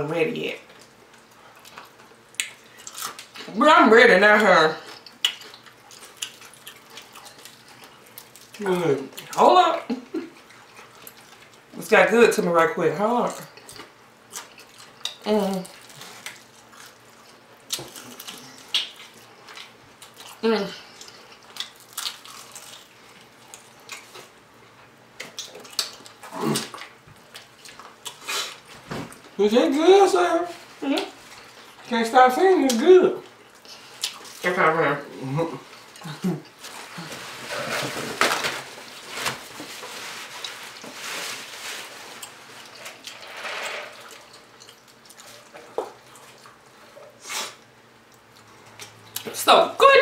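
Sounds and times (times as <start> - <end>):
wet chewing and lip-smacking: 4.8 - 9.3, 25.2 - 28.7, 44.1 - 47.2
close chewing: 4.8 - 9.4, 13.4 - 28.8, 44.0 - 49.3.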